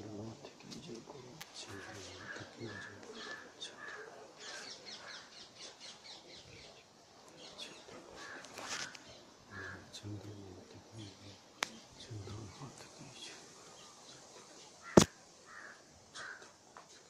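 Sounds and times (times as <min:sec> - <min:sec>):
bird calls: 0:01.6 - 0:17.0.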